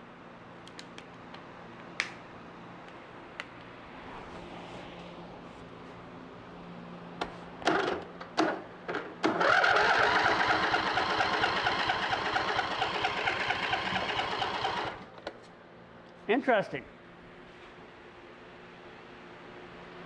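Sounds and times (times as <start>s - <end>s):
electric starter cranking engine: 9.2s - 15.1s.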